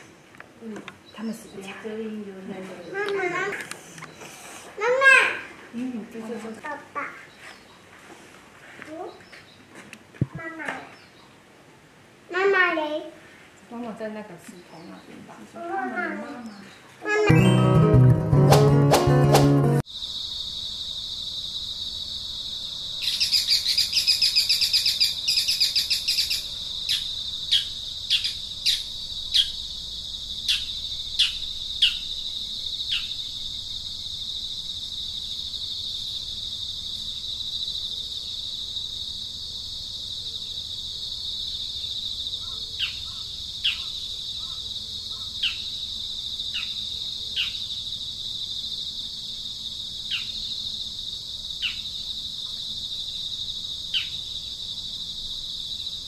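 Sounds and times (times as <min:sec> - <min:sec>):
high-pitched insect drone: 0:19.8 - 0:56.0
birds calling: 0:42.4 - 0:45.8.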